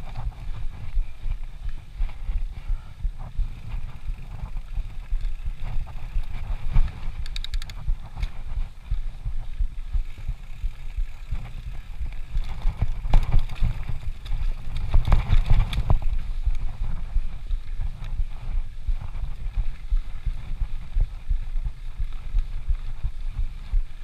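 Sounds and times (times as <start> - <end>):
wind buffeting microphone: 0.0 - 24.0
bike knocks and rattles: 3.2 - 8.8, 10.0 - 17.0.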